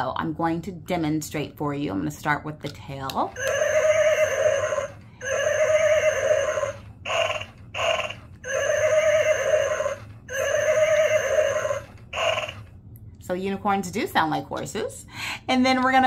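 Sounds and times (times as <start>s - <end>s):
toy horse neighs: 3.4s - 12.6s.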